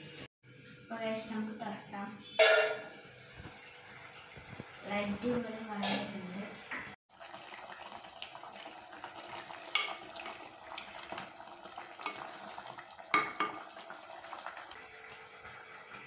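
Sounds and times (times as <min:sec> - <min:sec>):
gravy simmering with hiss: 0:03.5 - 0:16.0.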